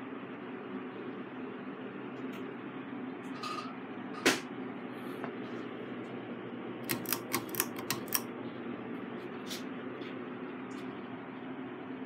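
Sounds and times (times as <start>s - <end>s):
ceiling fan whooshing hum: 0.0s - 12.0s
sharp clicks: 6.8s - 8.2s.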